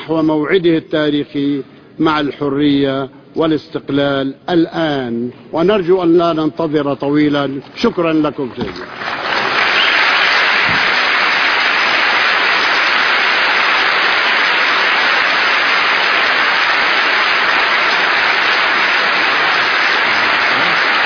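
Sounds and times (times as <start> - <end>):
large audience applauding: 8.8 - 21.0.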